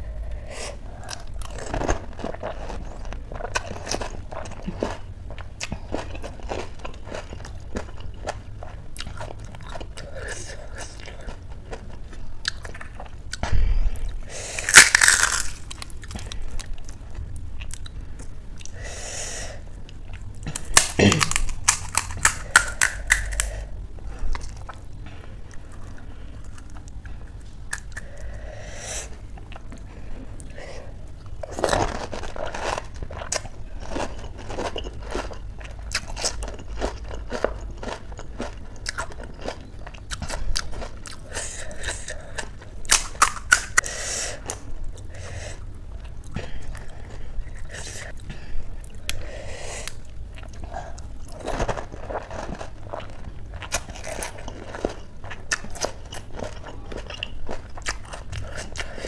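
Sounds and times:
crisp shells crunching: 14.6s - 16.6s, 20.5s - 23.5s, 42.8s - 43.8s.

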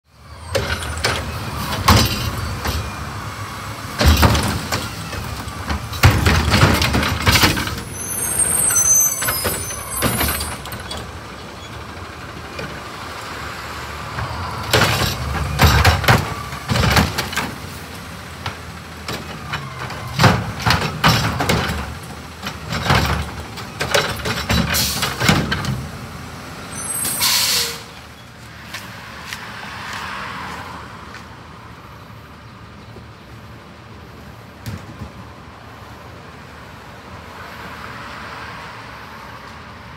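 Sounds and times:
carts knocking and banging: 0.5s - 3.1s, 3.9s - 13.0s, 14.0s - 26.0s
high squeals: 7.5s - 11.9s, 26.7s - 28.3s
air brake hiss: 26.8s - 27.9s.

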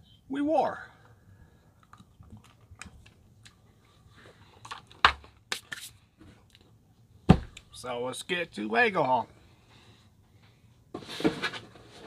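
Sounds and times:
biting and chewing crunches: 1.8s - 3.7s.

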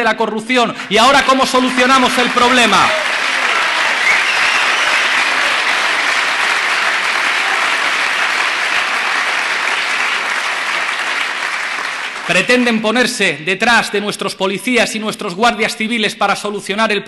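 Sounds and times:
audience applauding: 0.8s - 12.7s.

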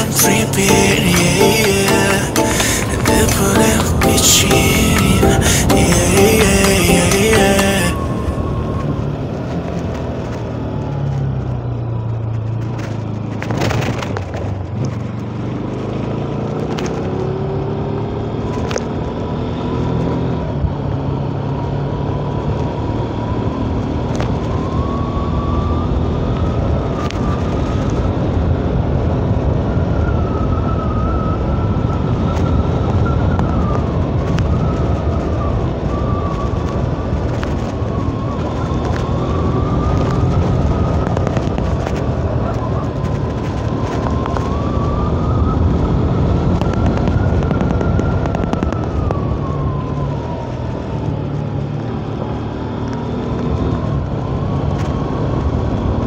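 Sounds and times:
wind and road noise: 6.0s - 56.0s.

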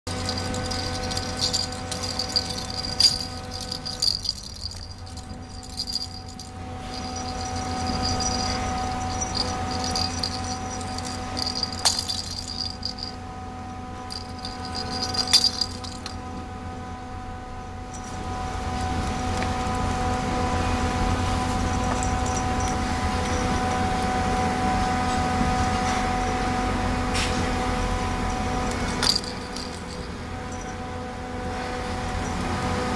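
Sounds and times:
rattle ball toy jingling: 0.1s - 13.2s, 14.1s - 16.2s, 29.0s - 30.6s
steady background hum: 0.1s - 32.9s.

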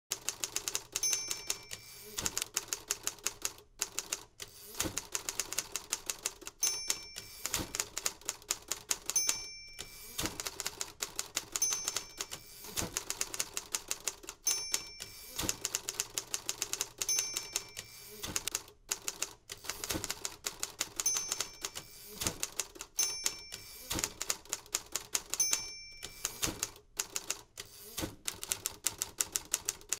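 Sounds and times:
typewriter carriage return: 0.2s - 29.9s
typewriter bell ring: 0.4s - 2.9s, 5.0s - 18.5s, 20.8s - 27.4s
typewriter key strikes: 4.8s - 18.6s, 19.7s - 27.4s.

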